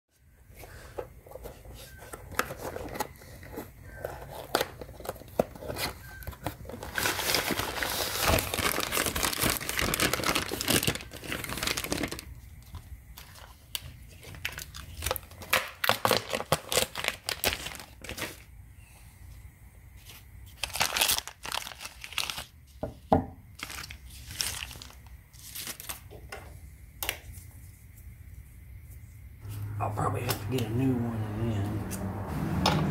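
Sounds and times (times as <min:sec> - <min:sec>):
plastic wrap crinkling and tearing: 0:01.8 - 0:18.5, 0:20.0 - 0:22.8, 0:23.5 - 0:26.1.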